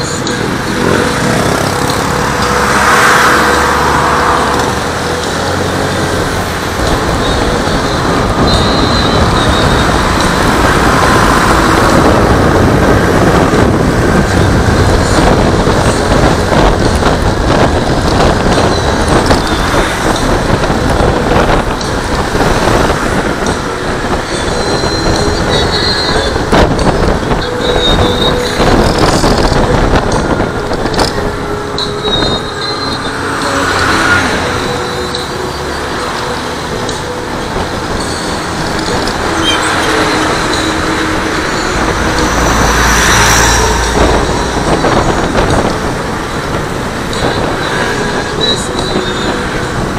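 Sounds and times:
trucks passing: 0.0 - 49.9
wind and road noise: 0.0 - 49.9.

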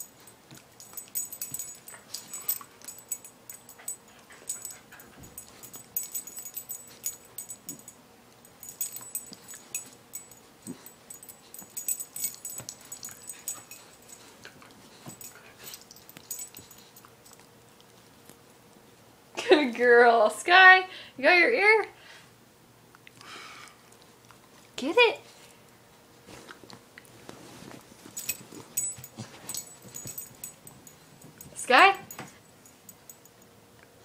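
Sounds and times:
puppy chewing and scuffling: 0.0 - 19.1, 22.8 - 34.0.

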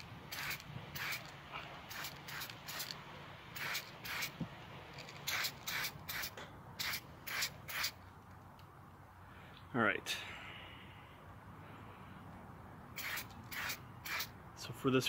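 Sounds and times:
aerosol spray can hissing: 0.3 - 1.3, 1.9 - 3.0, 3.6 - 4.4, 5.2 - 8.0, 13.0 - 14.3.

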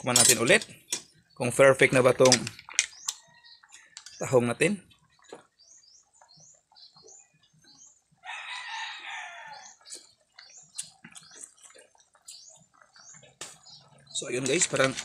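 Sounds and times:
small birds chirping: 0.0 - 15.0
rooster crowing: 8.2 - 9.8.

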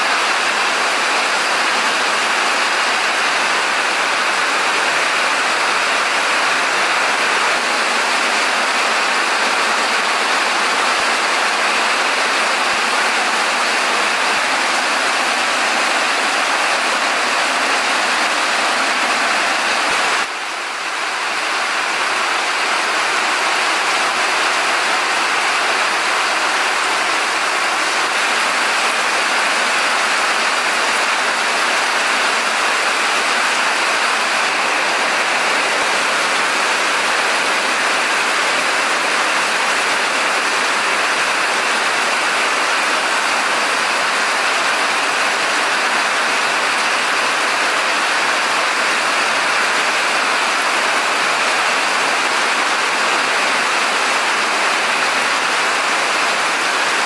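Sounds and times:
steady rain pouring: 0.0 - 57.0
water streaming off roof: 0.0 - 57.0.

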